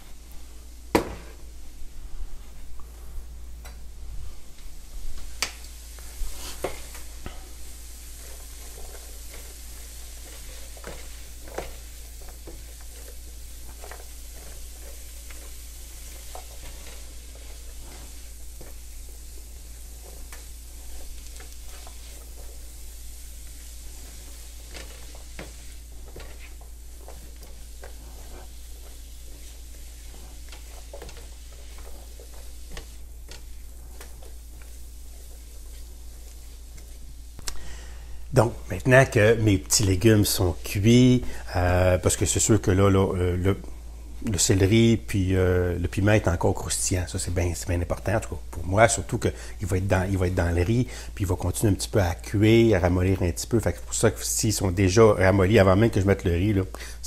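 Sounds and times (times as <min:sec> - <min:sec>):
vegetables sizzling in a frying pan: 0:03.4 - 0:57.0
spatula scraping a pan: 0:06.0 - 0:37.0.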